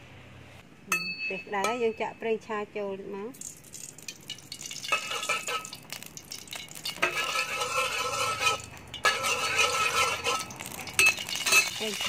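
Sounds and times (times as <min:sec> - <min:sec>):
ladle scraping steel wok: 0:04.3 - 0:12.0.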